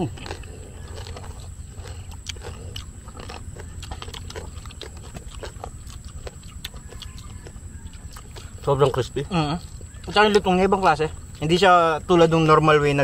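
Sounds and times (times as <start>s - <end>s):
people chewing crispy food: 0.0s - 13.0s.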